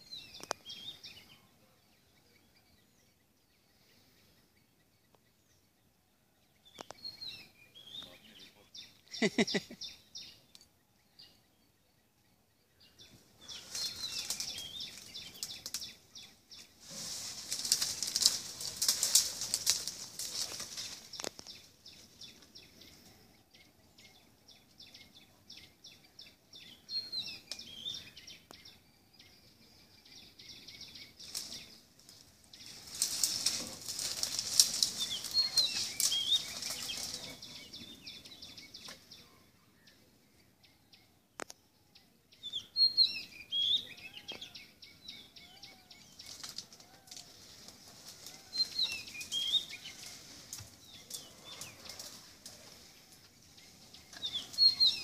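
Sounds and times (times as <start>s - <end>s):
elephant crackling through dry leaves: 13.4s - 22.1s, 31.2s - 37.9s, 46.0s - 55.0s
small bird chirps: 40.7s - 47.0s, 52.7s - 55.0s.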